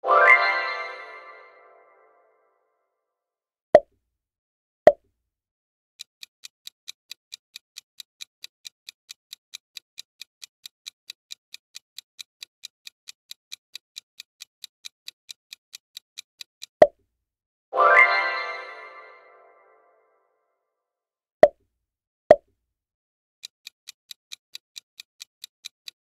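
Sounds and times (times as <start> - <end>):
timer ticking: 6.0 - 16.9, 23.4 - 26.0.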